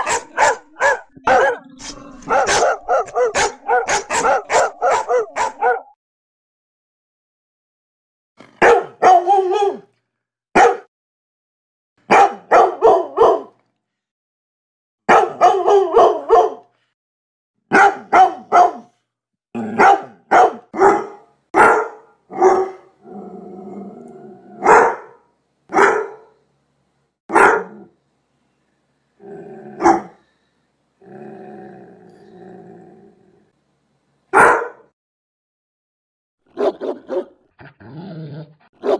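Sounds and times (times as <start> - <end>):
dog growling: 0.0 - 5.7, 22.9 - 24.7, 29.2 - 30.2, 31.0 - 33.5, 37.6 - 38.7
dog barking: 0.0 - 6.0, 8.6 - 9.9, 10.6 - 10.9, 12.1 - 13.6, 15.1 - 16.7, 17.7 - 19.0, 19.7 - 22.9, 24.6 - 26.4, 27.3 - 27.9, 29.8 - 30.2, 34.3 - 34.9, 36.5 - 37.4.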